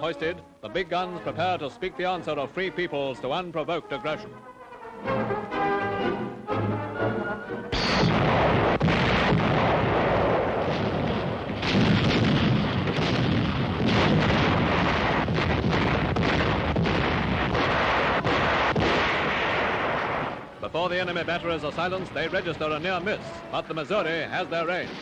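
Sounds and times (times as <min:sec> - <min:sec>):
heavy rumble of shell bursts: 0:07.7 - 0:20.4
heavy naval gunfire blasts: 0:07.7 - 0:25.0.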